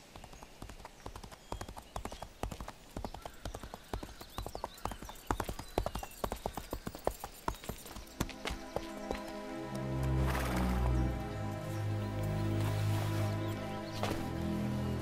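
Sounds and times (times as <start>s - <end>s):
horses hooves clip-clopping: 0.0s - 11.0s.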